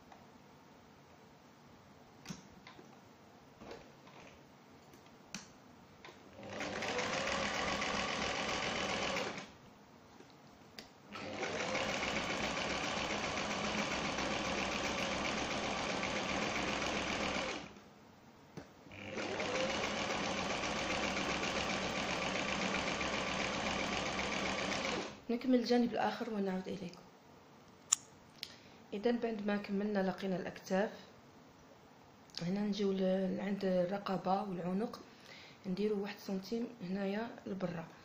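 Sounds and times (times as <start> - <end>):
electric sewing machine running: 6.4 - 9.5, 11.1 - 17.8, 18.9 - 25.2.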